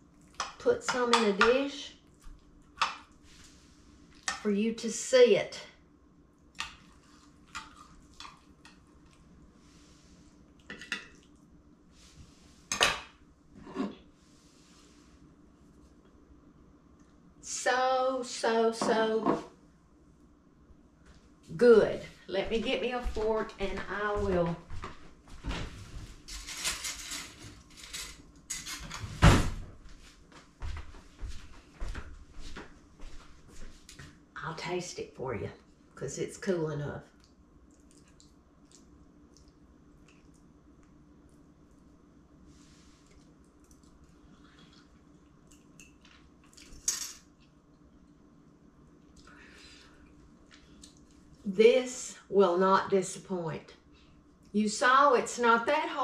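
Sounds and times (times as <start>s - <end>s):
cutlery scraping and clattering: 26.3s - 29.2s, 46.8s - 47.2s.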